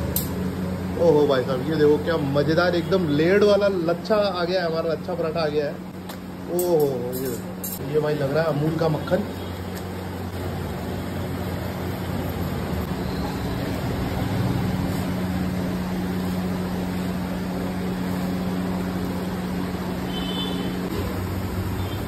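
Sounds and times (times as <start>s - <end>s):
machine hum: 0.0s - 22.0s.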